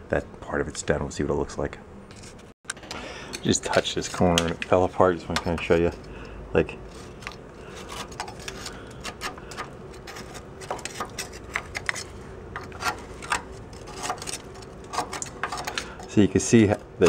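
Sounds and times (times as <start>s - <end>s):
metal scraper scraping rust: 6.8s - 16.2s.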